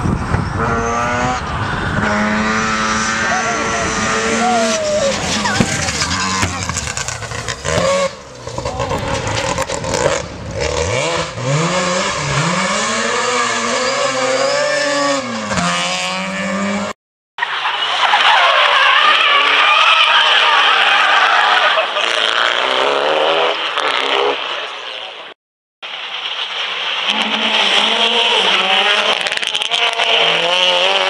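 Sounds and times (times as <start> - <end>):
rally car engine revving: 0.0 - 17.0, 26.9 - 31.0.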